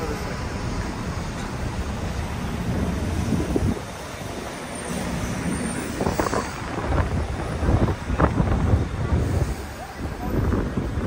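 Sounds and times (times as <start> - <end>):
low traffic rumble: 0.0 - 11.0
wind noise on microphone: 2.7 - 4.5, 5.3 - 11.0.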